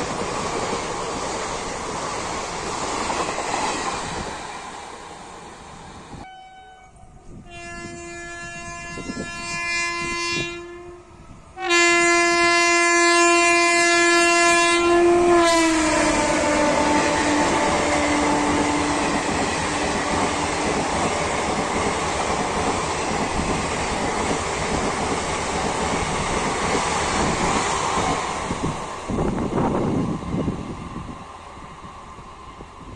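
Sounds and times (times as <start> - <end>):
train horn blasts: 6.2 - 20.8.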